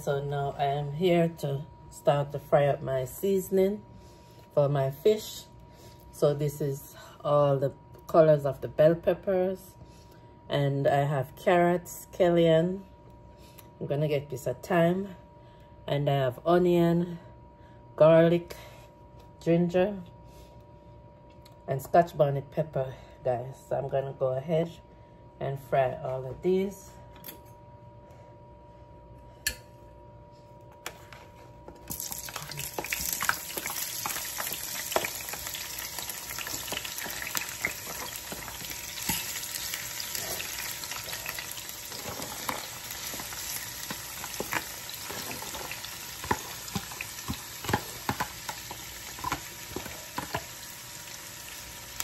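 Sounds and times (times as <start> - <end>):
vegetables sizzling in hot oil: 31.9 - 52.0.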